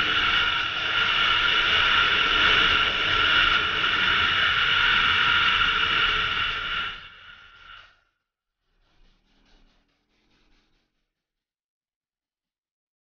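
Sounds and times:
wind rush: 0.0 - 8.0.

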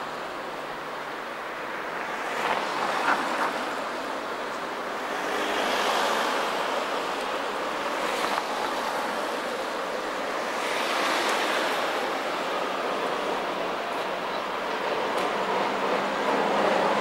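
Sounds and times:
traffic on wet road: 0.0 - 17.0
tram approaching: 11.6 - 17.0.

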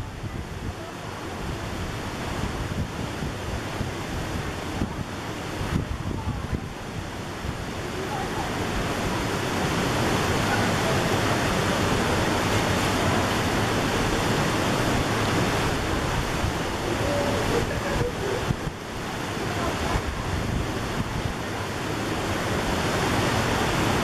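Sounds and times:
moving water: 0.0 - 24.0
wind on microphone: 0.0 - 24.0
faint voices: 4.7 - 22.9.

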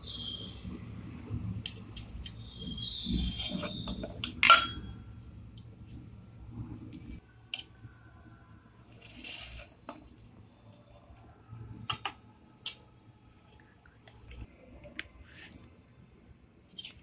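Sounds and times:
knife scraping board: 3.2 - 3.9, 8.9 - 9.7.

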